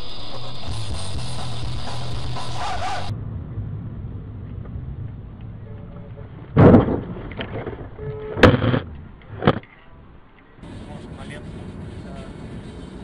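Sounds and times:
vehicle driving rumble: 0.0s - 13.0s
loud sudden thumps: 6.5s - 9.6s.

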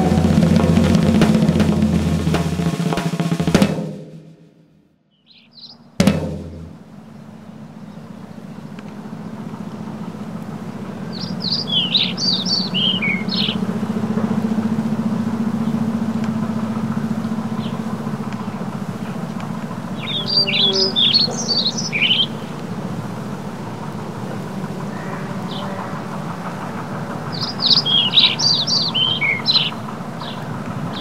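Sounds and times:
sudden hit: 0.0s - 4.3s, 6.0s - 7.0s
drum roll with snare and bass drum: 0.0s - 4.5s, 6.0s - 7.2s, 9.0s - 31.0s
steady low hum: 0.0s - 4.8s, 5.8s - 31.0s
bird-like chirps: 5.1s - 6.0s, 6.9s - 23.6s, 24.4s - 31.0s.

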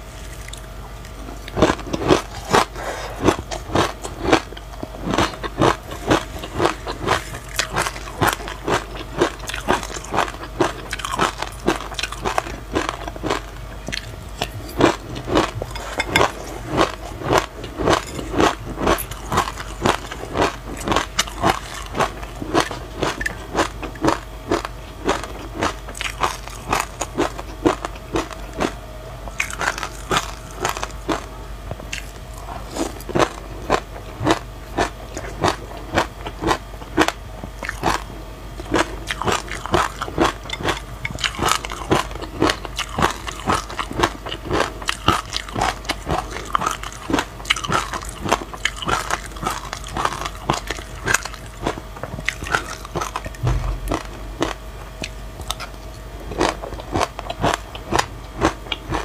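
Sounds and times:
crunchy chewing: 0.0s - 59.0s
low thump: 53.4s - 54.3s.

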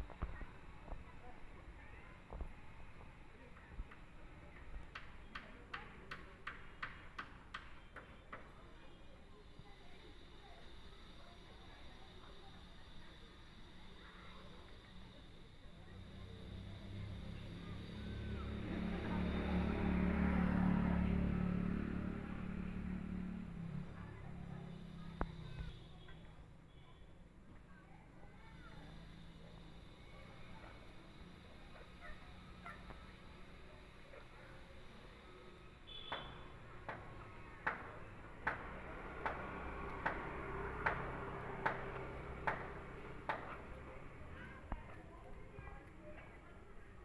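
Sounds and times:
sharp ticks: 4.6s - 8.6s, 35.9s - 44.2s
vehicle engine passing: 15.9s - 26.2s, 28.4s - 46.2s.

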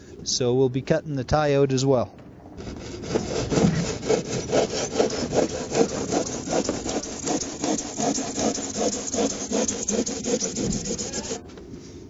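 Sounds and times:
hand saw rasping through foam: 2.6s - 11.4s.

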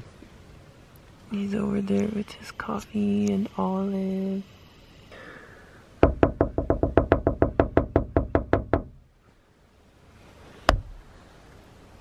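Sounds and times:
sharp knock: 6.0s - 8.9s
hollow knocks on hard surface: 6.0s - 9.0s.

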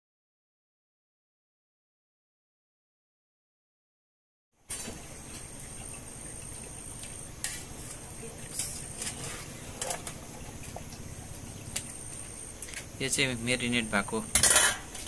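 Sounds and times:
skimmer scraping steel pot: 7.4s - 10.8s.

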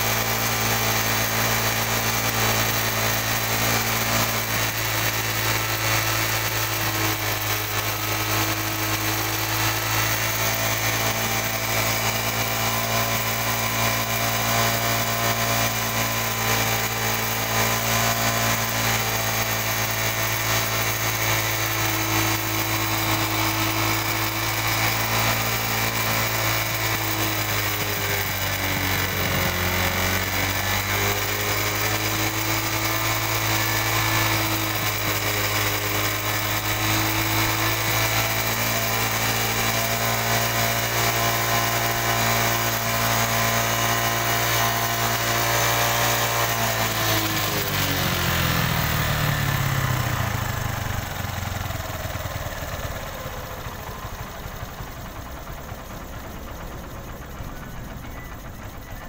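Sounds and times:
motorcycle engine idling: 18.4s - 35.4s, 47.3s - 59.0s.

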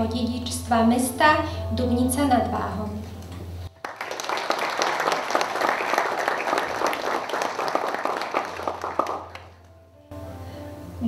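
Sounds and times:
audience applauding: 3.8s - 9.6s.

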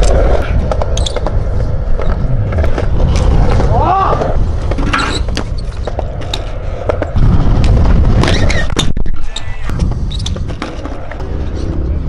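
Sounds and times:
bike clicks and knocks on concrete: 0.0s - 9.0s
wind rumble on microphone: 0.0s - 12.0s.

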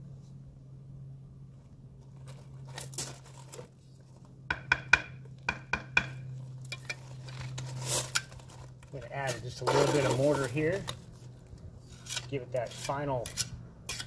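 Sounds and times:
steady low hum: 0.0s - 14.0s
trowel scraping concrete: 6.8s - 14.0s.

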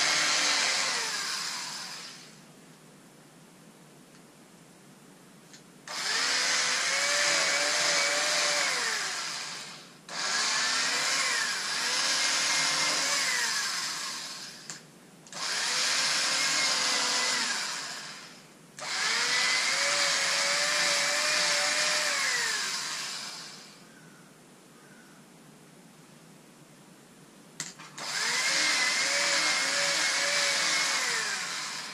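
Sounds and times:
electric fabric cutter motor whine: 0.0s - 2.4s, 5.9s - 14.7s, 15.4s - 23.8s, 27.9s - 31.9s.

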